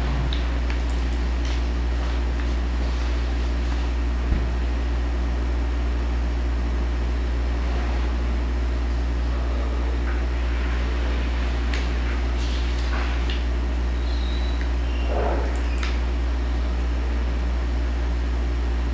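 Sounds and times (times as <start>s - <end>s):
electrical mains hum: 0.0s - 18.9s.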